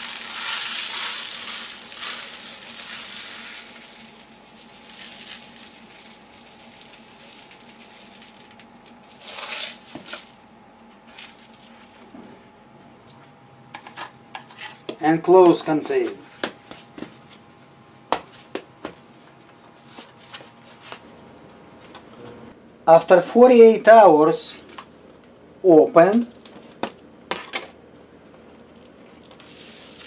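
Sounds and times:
dry rice pouring into plastic container: 0.0 - 7.4.

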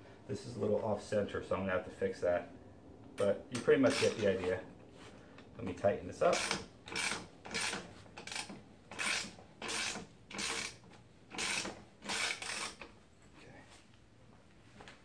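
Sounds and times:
ratchet wrench clicking: 6.3 - 12.9.

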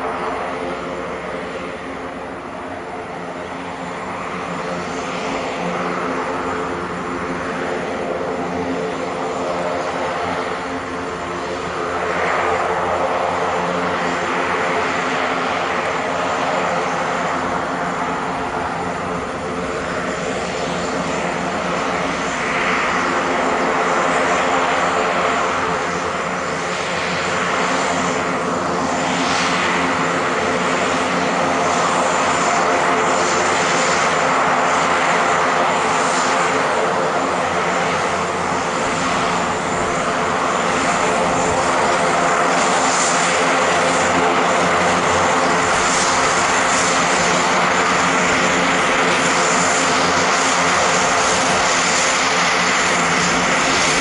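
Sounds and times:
high turbine whine: 0.0 - 54.0
propeller drone: 0.0 - 54.0.

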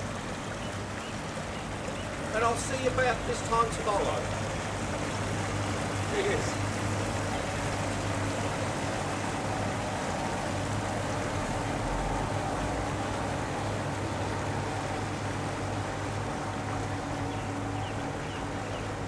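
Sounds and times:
outboard motors humming: 0.0 - 19.0.

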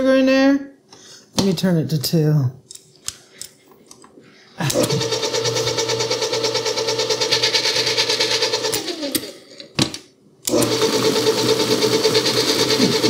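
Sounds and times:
stand mixer whining: 4.7 - 9.3, 10.5 - 13.0.

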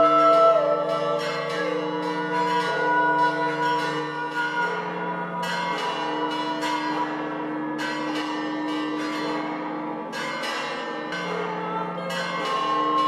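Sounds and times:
voices singing long tones: 0.0 - 1.8
church bells ringing: 0.0 - 13.0.

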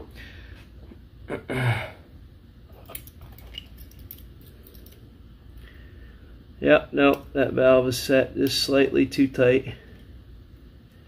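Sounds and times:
small metal clicks and scrapes: 2.8 - 5.0.

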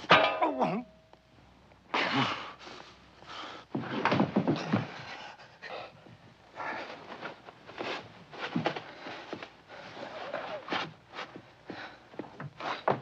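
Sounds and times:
scuffling: 6.6 - 13.0.

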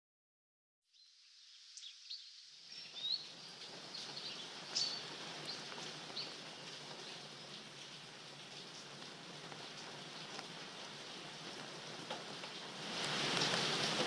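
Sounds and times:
small birds chirping: 0.9 - 10.9
steady background hiss: 0.9 - 14.0.

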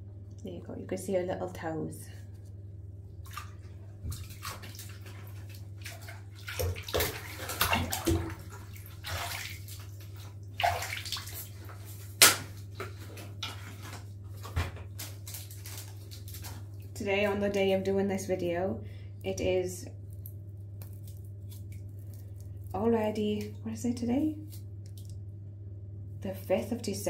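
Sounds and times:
steady low hum: 0.0 - 27.0
bath water splashing: 3.2 - 17.4, 20.0 - 23.5.

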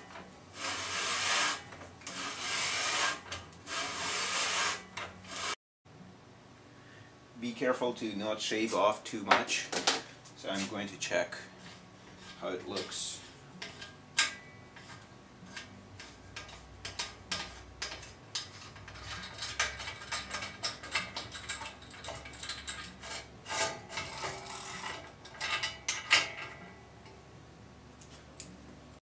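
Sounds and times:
metal tool parts clicking and scraping: 11.6 - 26.7
sharp metal clack: 13.6 - 26.8.

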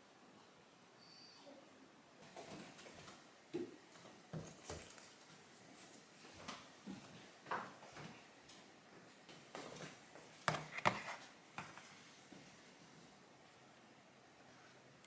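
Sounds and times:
objects being moved about: 4.3 - 6.0, 9.6 - 12.0.

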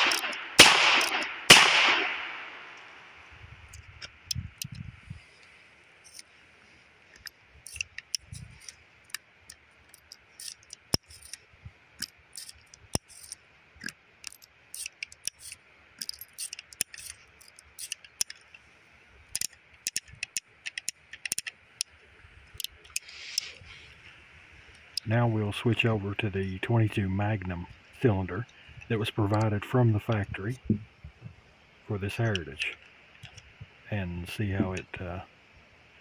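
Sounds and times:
revolver metallic clicks: 0.0 - 4.8, 7.1 - 11.4, 12.0 - 18.6, 19.3 - 23.5
soft rustle: 21.6 - 25.8.

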